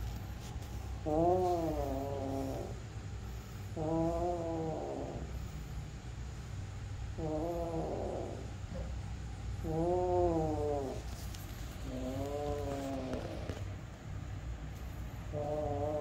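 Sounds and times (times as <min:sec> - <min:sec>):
kitten low growl: 0:01.0 - 0:02.8, 0:03.7 - 0:05.5, 0:07.1 - 0:08.9, 0:09.6 - 0:11.2, 0:11.8 - 0:13.7, 0:15.3 - 0:16.0.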